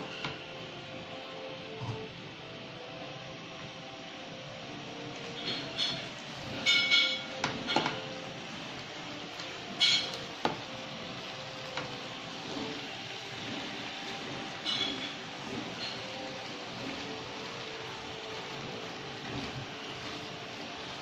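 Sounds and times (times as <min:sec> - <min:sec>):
spatulas stirring food in a wok: 0:04.6 - 0:21.0
utensils clinking against pan: 0:05.3 - 0:08.3, 0:09.3 - 0:10.6, 0:14.1 - 0:17.3.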